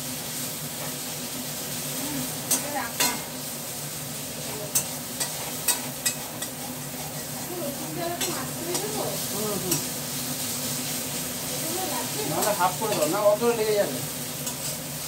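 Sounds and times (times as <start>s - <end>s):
food sizzling in a wok: 0.0s - 15.0s
spatula tapping and scraping pan: 2.5s - 3.3s, 4.7s - 6.6s, 8.2s - 9.0s.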